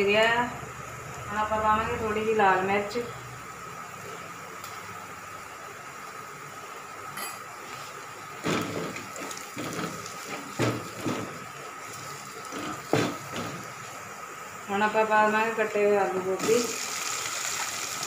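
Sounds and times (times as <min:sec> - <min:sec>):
frying sizzle in oil: 0:00.0 - 0:18.0.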